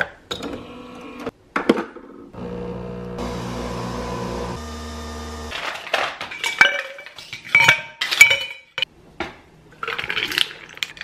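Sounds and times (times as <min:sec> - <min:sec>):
appliance hum: 0:02.4 - 0:05.6.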